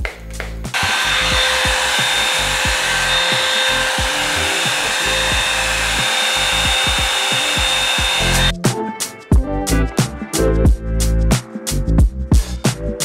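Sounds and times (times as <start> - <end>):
hair dryer airflow hiss: 0.7 - 8.5
background music with a beat: 3.4 - 13.0.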